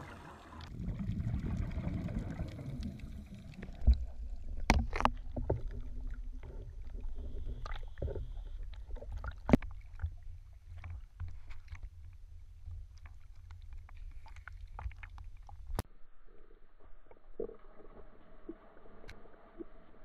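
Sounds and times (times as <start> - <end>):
water sloshing against camera housing: 4.6 - 10.1.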